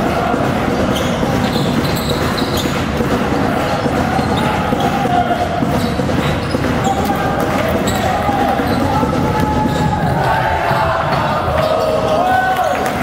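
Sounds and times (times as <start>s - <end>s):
hall noise: 0.0s - 13.0s
shoe squeaks: 0.8s - 2.9s, 3.7s - 10.3s.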